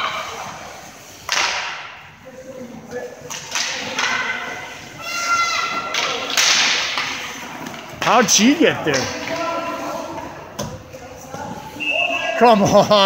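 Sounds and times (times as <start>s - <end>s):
stick and puck thuds: 1.2s - 2.0s, 3.2s - 4.4s, 5.7s - 9.6s.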